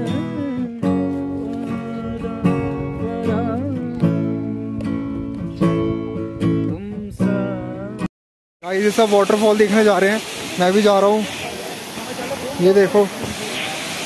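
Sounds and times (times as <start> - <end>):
acoustic guitar strumming: 0.0 - 8.1
person singing: 0.0 - 8.1.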